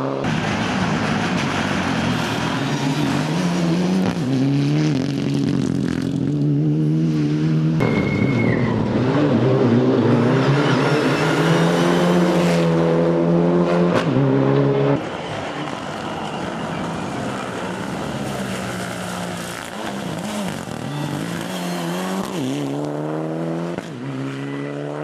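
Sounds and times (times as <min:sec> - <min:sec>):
high whistle: 0:07.8 - 0:08.8.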